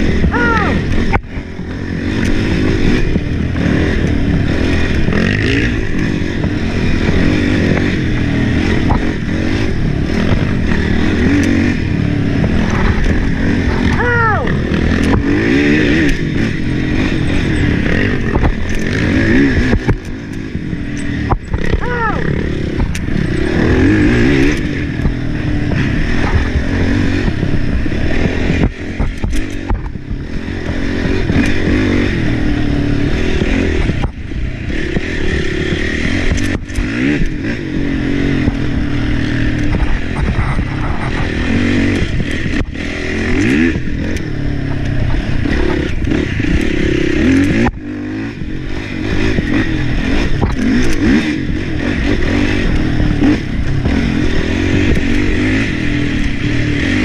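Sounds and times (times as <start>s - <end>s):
atv engine revving: 0.0s - 57.0s.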